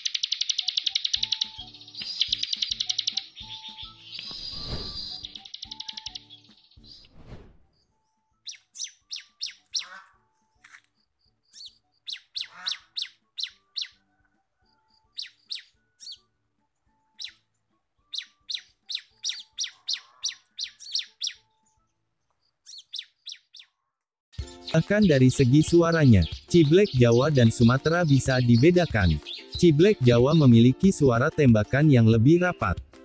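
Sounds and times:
bird chip notes: 0.0 - 6.6, 24.4 - 32.9
falling swoosh: 4.3 - 5.2, 7.1 - 7.7.

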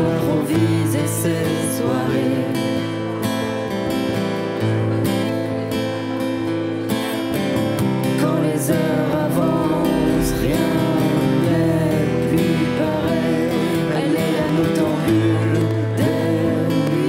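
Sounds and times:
person singing: 0.0 - 3.1, 8.0 - 17.0
strummed acoustic guitar: 0.0 - 17.0.

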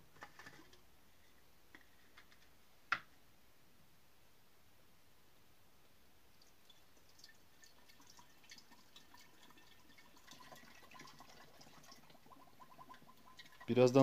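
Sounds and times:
water trickling and dripping: 6.3 - 14.0.

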